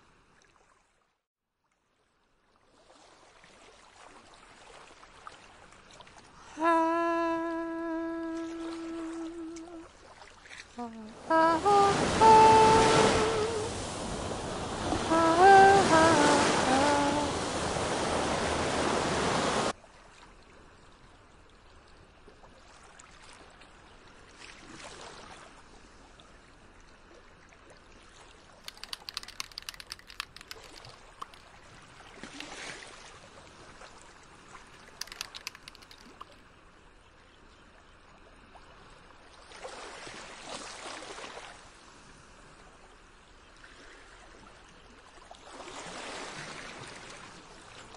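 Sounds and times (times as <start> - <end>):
ocean surf washing: 6.6 - 9.8, 10.8 - 19.7.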